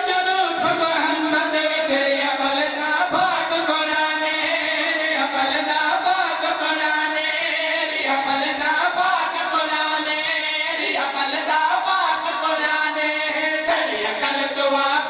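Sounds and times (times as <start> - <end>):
men chanting into a microphone: 0.0 - 15.0.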